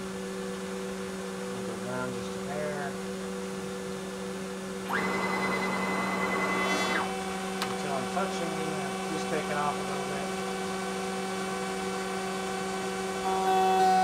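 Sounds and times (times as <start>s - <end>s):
router spindle humming: 0.7s - 14.0s
rising and falling whines: 4.8s - 14.0s
router cutting noise: 4.8s - 14.0s.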